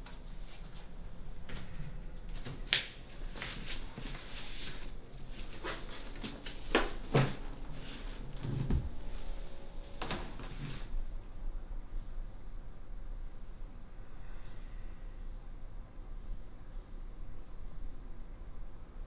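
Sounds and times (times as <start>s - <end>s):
person moving about handling things: 0.0s - 11.0s
faint low hum: 0.0s - 19.0s.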